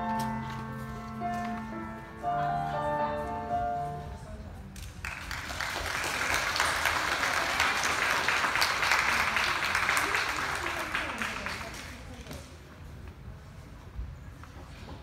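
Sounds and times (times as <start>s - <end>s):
piano music over speakers: 0.0s - 4.7s
audience applauding: 5.0s - 12.1s.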